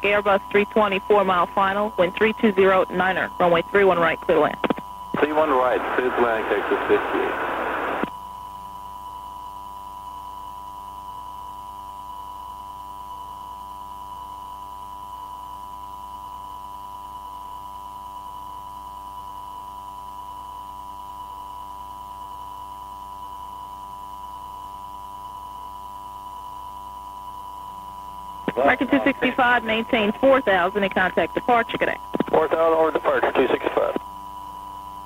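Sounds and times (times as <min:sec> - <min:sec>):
low hum: 0:27.2 - 0:35.0.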